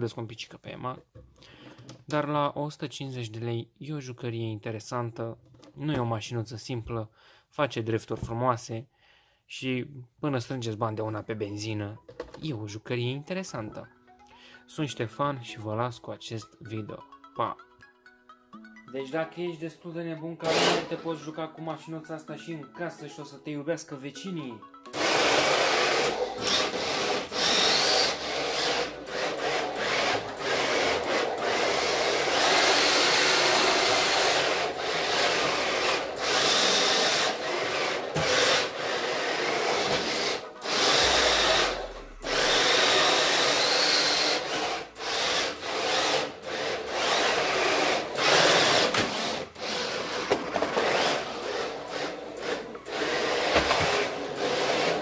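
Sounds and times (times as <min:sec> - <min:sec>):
rc car whirring and scrubbing: 0:20.4 - 0:21.0, 0:25.0 - 0:55.0
motor whine: 0:40.6 - 0:44.5.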